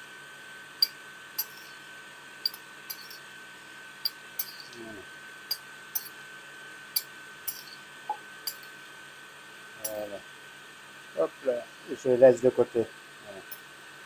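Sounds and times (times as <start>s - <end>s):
faint high hum: 0.0s - 14.0s
spoon clinking on ceramic bowl: 0.8s - 1.7s, 2.4s - 3.2s, 4.0s - 4.8s, 5.5s - 6.1s, 7.0s - 7.8s, 8.5s - 8.7s.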